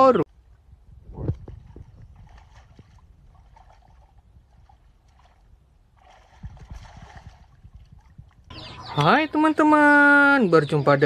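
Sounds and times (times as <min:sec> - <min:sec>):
water sloshing and splashing: 0:01.2 - 0:09.1.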